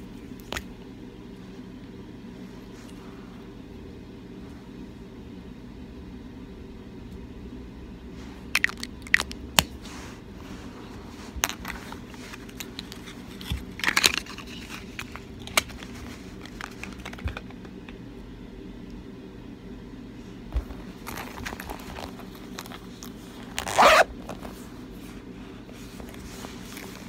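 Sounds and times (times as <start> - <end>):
steady low hum: 0.0 - 27.0
clicks taps and crinkles of handling: 11.2 - 18.0, 20.5 - 24.6, 25.7 - 27.0.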